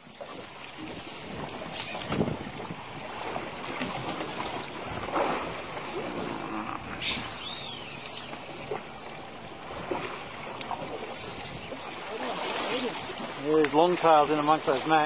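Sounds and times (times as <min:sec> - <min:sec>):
water lapping around boat: 0:00.0 - 0:15.0
wind: 0:00.0 - 0:15.0.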